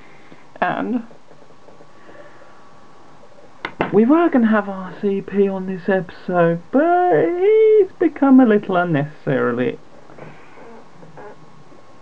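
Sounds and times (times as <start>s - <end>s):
room noise and hiss: 0.0s - 12.0s.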